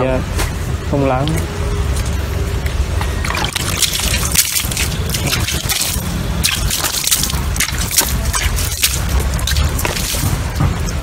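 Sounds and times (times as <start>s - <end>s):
water splashing onto clay: 3.2s - 11.0s.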